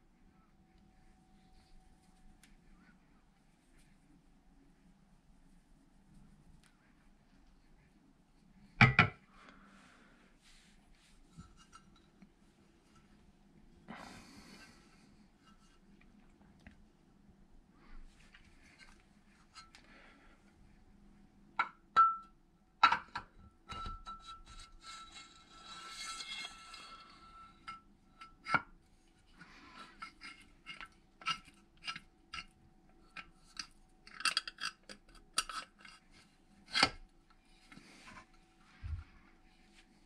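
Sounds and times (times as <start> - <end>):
scraping: 24.5 - 27.8.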